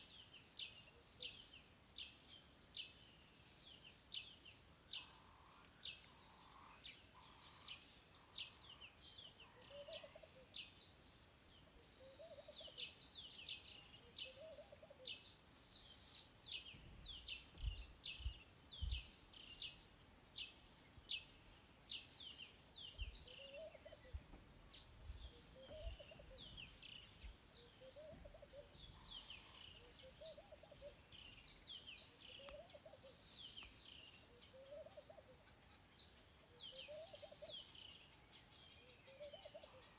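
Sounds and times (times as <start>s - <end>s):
lower bird call: 22.9s - 35.8s.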